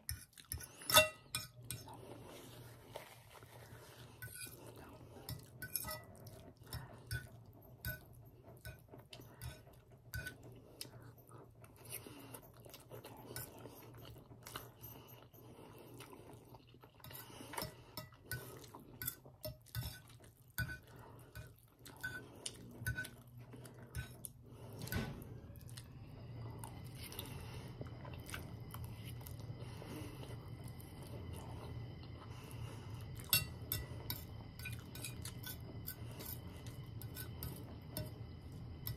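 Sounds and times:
fork clinking on ceramic plate: 0.8s - 1.6s, 33.2s - 35.6s
close-up chewing: 10.4s - 24.8s, 25.6s - 38.4s.

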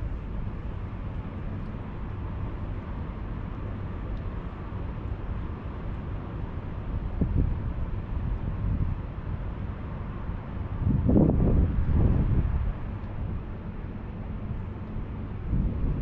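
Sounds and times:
wind buffeting microphone: 7.2s - 9.1s, 10.6s - 13.5s, 14.4s - 16.0s.

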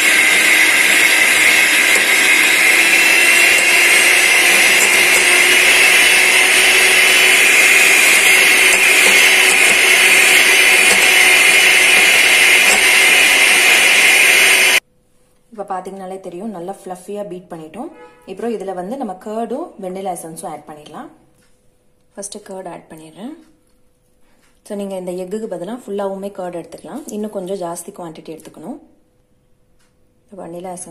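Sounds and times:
electric mixer beating batter: 0.0s - 14.8s.

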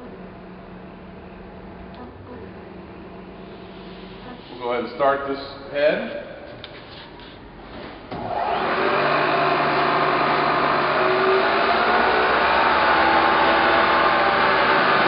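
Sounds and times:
milling machine motor humming: 8.2s - 15.0s.

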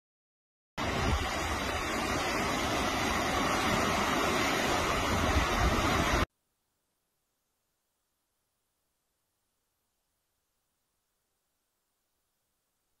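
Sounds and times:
floodwater rushing: 0.8s - 6.3s.

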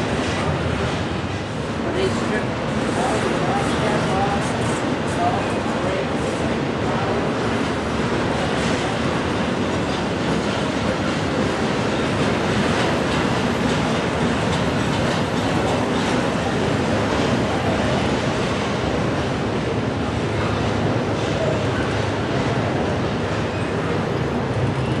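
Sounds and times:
freight train rumbling: 0.0s - 25.0s.

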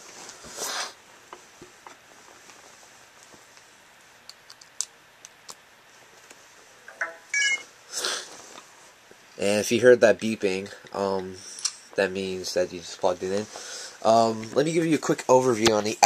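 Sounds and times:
short device beeping: 7.0s - 7.7s.

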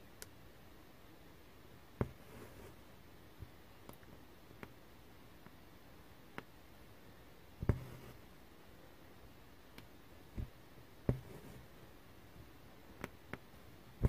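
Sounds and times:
needle thumping through fabric: 2.0s - 2.5s, 7.6s - 8.2s, 10.3s - 11.6s
floss rasping through fabric: 7.6s - 8.2s, 9.8s - 11.8s.

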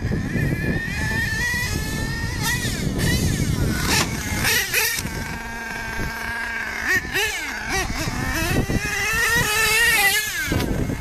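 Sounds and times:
small glow engine whining: 0.0s - 11.0s.

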